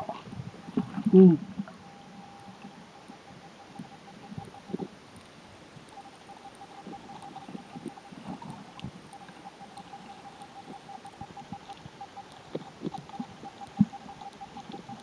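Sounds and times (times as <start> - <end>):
underwater thuds and gurgles: 0.0 - 1.8, 6.8 - 15.0
faint steady hum: 0.0 - 15.0.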